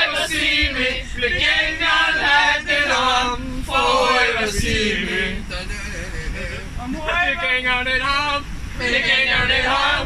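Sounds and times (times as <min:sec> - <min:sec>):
group singing chant-like song: 0:00.0 - 0:05.5, 0:08.8 - 0:10.0.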